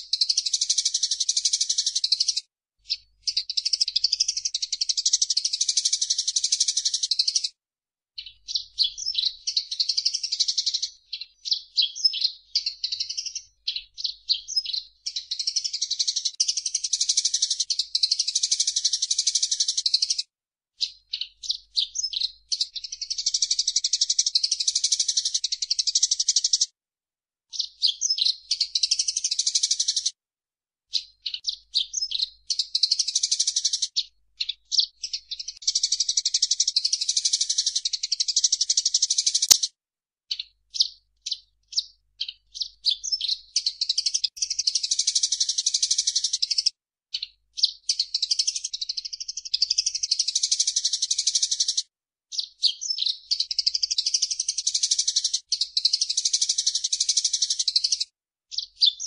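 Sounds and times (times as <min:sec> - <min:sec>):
sparrow chirping and trilling: 0:00.0 - 0:07.5, 0:08.2 - 0:20.2, 0:20.8 - 0:26.7, 0:27.5 - 0:30.2, 0:30.9 - 0:39.7, 0:40.3 - 0:59.0.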